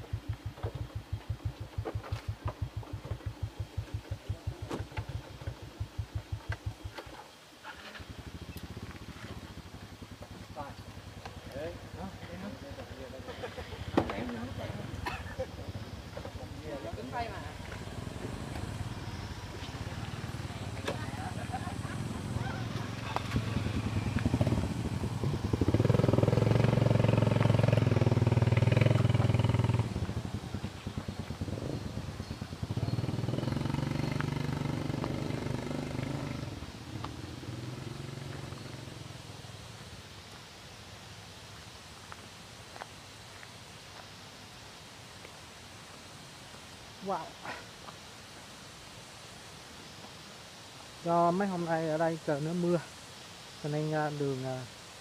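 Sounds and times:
small engine idling: 0.0s - 39.6s.

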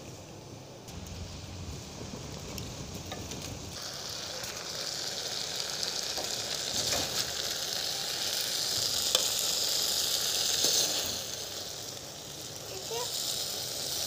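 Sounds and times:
food sizzling in a metal pot: 0.0s - 14.0s.

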